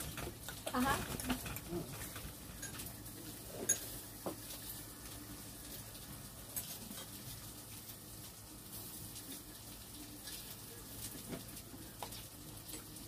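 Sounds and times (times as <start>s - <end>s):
chopsticks and dishes clinking: 0.0s - 4.7s, 6.5s - 7.4s, 10.2s - 13.0s.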